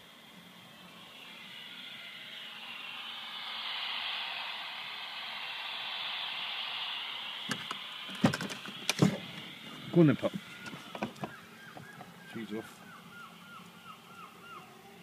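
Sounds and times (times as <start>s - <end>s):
radio static hiss: 0.0s - 15.0s
sharp clicks and knocks: 7.5s - 9.2s.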